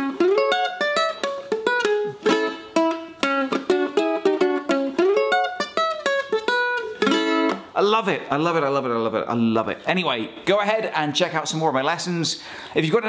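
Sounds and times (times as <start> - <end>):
ukulele plucked melody: 0.0 - 7.8.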